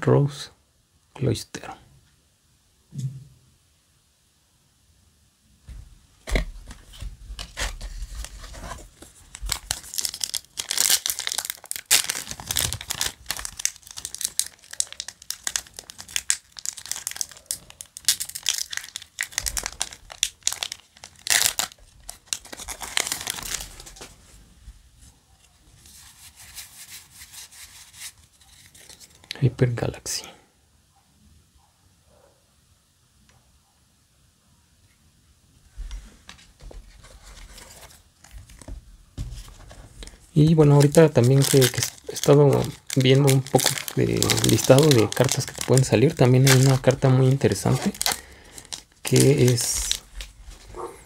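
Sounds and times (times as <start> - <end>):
foil wrapper tearing and crinkling: 6.3 - 24.1, 40.0 - 50.3.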